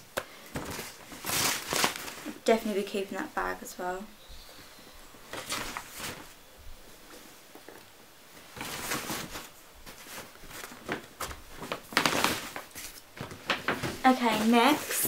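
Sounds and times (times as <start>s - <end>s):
paper bags rustling: 0.4s - 2.5s, 5.2s - 6.4s, 8.3s - 15.0s.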